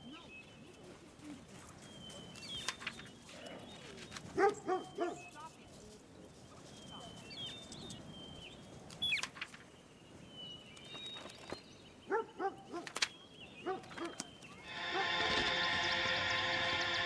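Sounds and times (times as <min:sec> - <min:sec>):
music: 0:14.6 - 0:17.0.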